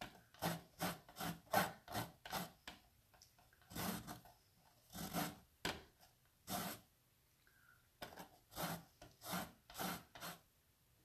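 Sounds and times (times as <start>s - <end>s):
lemon scraping on zester: 0.4s - 2.6s, 3.7s - 4.3s, 4.9s - 5.4s, 6.4s - 6.8s, 8.2s - 10.4s.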